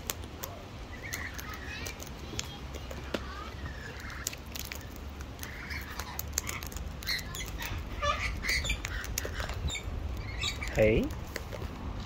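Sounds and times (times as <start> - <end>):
cockatoo soft calls: 3.3 - 10.8.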